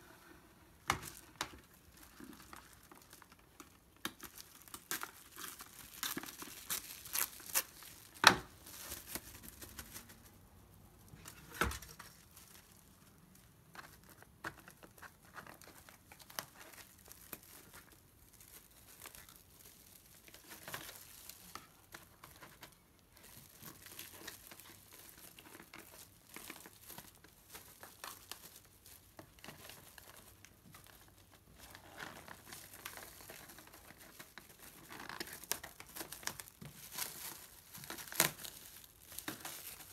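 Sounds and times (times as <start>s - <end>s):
plastic wrap crinkling: 0.0s - 39.9s
plastic wrap snapping: 0.8s - 10.3s, 13.7s - 39.9s.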